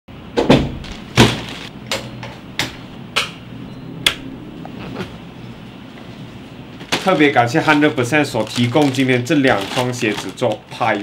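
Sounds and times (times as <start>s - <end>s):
faint low hum: 1.8s - 8.1s.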